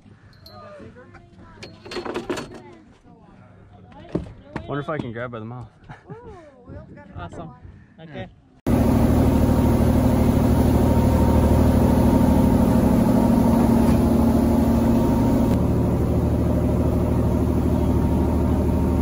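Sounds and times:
boat engine droning: 0:08.7 - 0:19.0.

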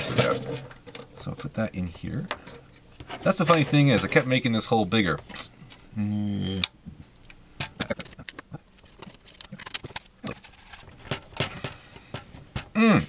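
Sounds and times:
plastic parts clicking together: 0:06.6 - 0:12.7.

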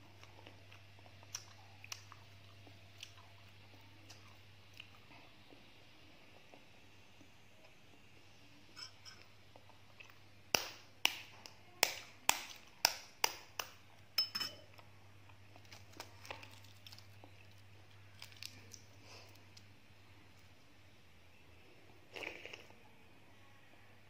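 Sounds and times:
egg tapping with sharp clinks: 0:11.8 - 0:14.7
eggshell crackling: 0:15.4 - 0:20.5.

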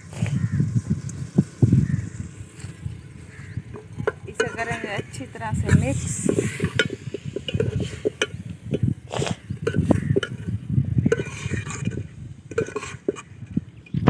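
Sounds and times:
metal spoon scraping pot: 0:01.2 - 0:13.9
spoon clinking against pot: 0:03.7 - 0:05.2, 0:06.2 - 0:08.9, 0:09.6 - 0:13.3.

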